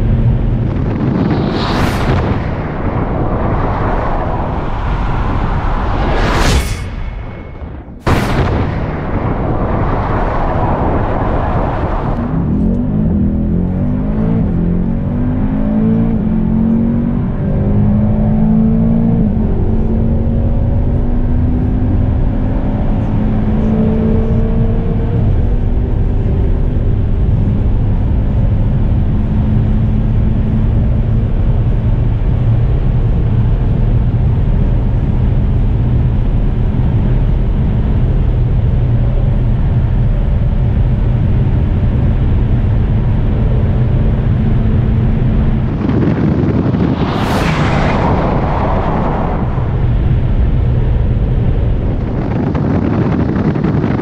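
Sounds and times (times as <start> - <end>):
wind rush: 0.0 - 54.0
car engine accelerating through gears: 12.2 - 30.6.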